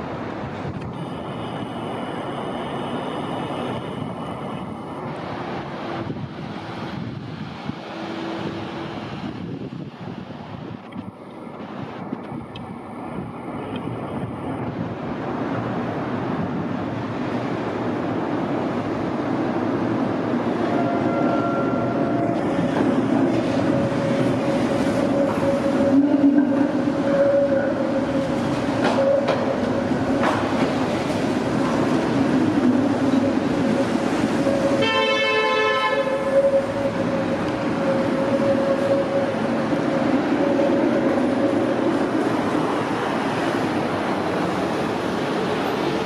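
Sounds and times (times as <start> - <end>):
tram running noise: 0.0 - 46.0
tram warning horn: 20.6 - 22.6, 23.4 - 30.6, 32.6 - 41.4.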